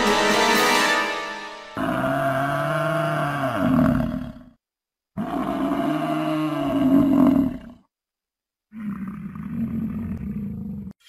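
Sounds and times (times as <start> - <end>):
deep animal roar: 1.8 - 4.6, 5.2 - 7.9, 8.7 - 11.0.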